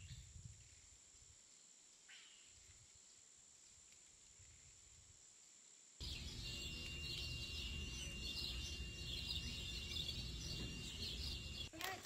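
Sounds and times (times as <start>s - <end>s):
birds chirping: 6.0s - 12.0s
thin high tone: 6.0s - 12.0s.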